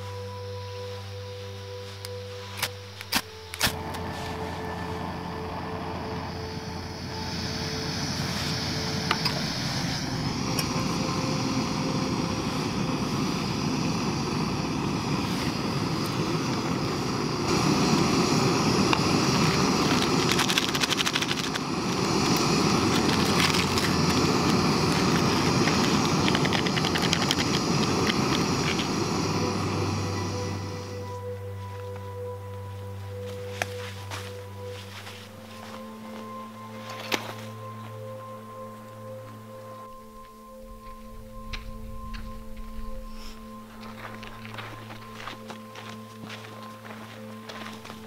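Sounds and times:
gas stove hissing: 2.1s - 31.3s.

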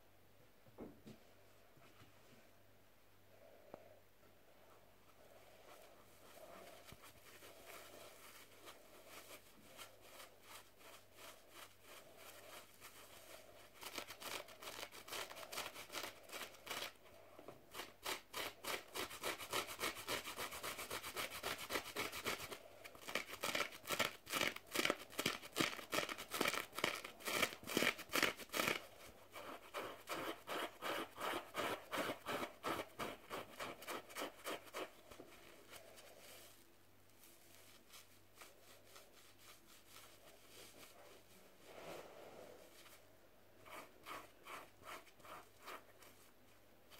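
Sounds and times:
fingers scratching sponge: 5.8s - 17.0s, 17.7s - 36.5s, 43.6s - 46.3s.

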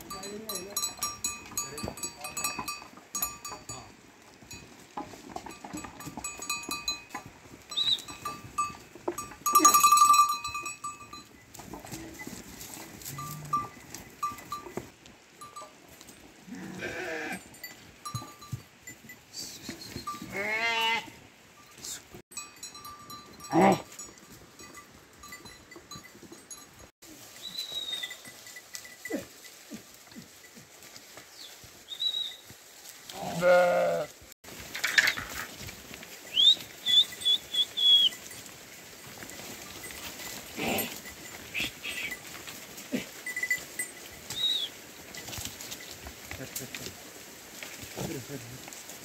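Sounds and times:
sheep bells clinking: 0.0s - 33.8s, 34.4s - 49.0s
sheep bleating: 16.5s - 17.4s, 20.3s - 21.2s, 33.1s - 34.2s.

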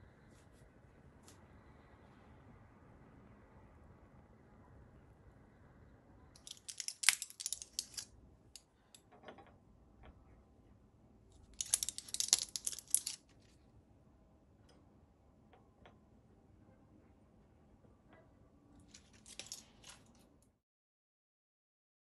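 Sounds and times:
sharp crackling handling noise: 6.4s - 8.1s, 11.4s - 13.6s, 18.8s - 20.3s.

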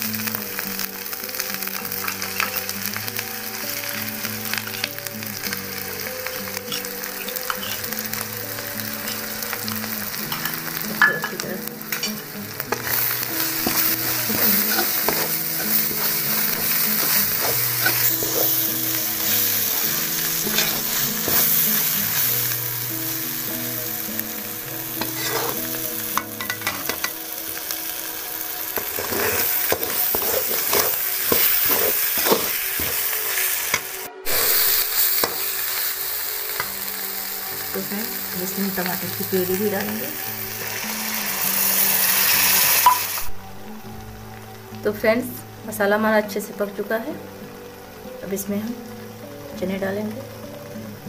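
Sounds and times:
masala sizzling in hot oil: 0.0s - 51.0s
metal spoon scraping a pan: 6.3s - 7.9s, 9.0s - 22.3s, 25.0s - 27.2s, 28.8s - 35.5s.

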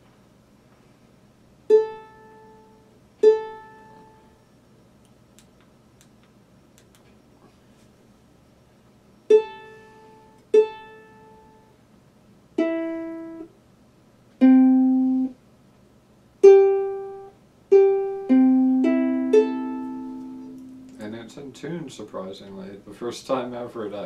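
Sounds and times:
mandolin strings plucked: 3.2s - 4.2s, 14.4s - 15.3s, 16.4s - 21.2s.

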